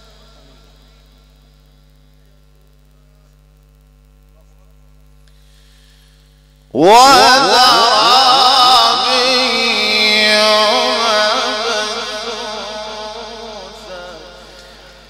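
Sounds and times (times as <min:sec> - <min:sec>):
electrical mains hum: 0:00.0 - 0:15.0
man chanting through loudspeakers: 0:06.8 - 0:15.0.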